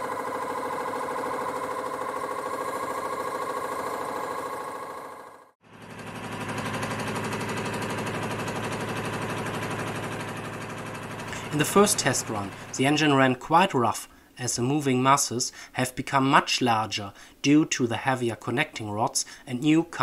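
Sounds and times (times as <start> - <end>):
engine mechanical clatter: 5.7 - 12.8.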